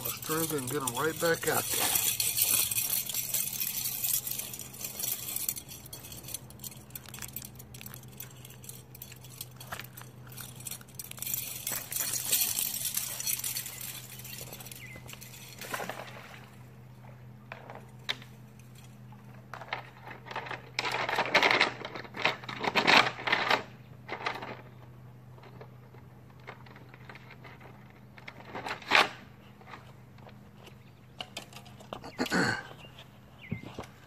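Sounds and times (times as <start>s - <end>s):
scraping and rustling of gear: 0.0s - 16.5s
steady low hum: 0.0s - 34.0s.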